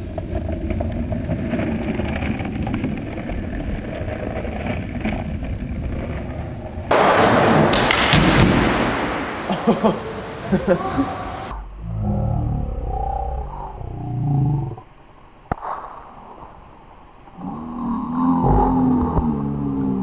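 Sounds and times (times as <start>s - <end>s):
skateboard wheels rolling on concrete: 0.0s - 11.5s
sharp knocks: 6.9s - 10.1s
loud rush of noise: 6.9s - 11.6s.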